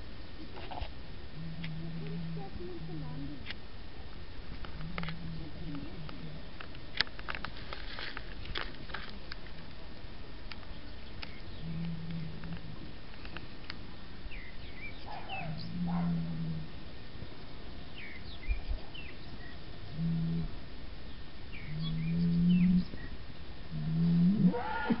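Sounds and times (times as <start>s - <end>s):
small birds chirping: 10.5s - 23.2s
low animal calls: 11.2s - 12.9s, 14.3s - 16.8s, 18.1s - 20.6s, 21.5s - 23.1s, 23.7s - 25.0s.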